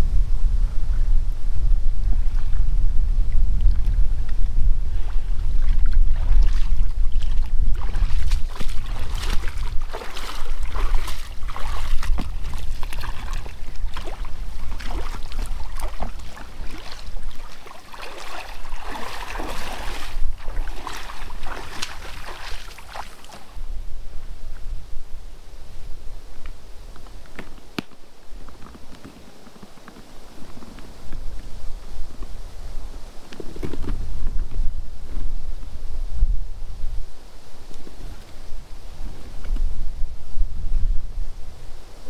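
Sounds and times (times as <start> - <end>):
wind rumbling on microphone: 0.0 - 42.0
water splashing and trickling: 5.4 - 23.6.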